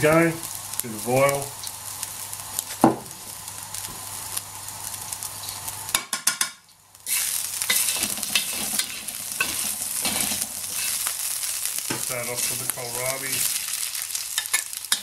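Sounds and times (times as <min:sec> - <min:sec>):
oil sizzling in a wok: 0:00.0 - 0:15.0
metal spatula scraping pan: 0:07.1 - 0:11.1.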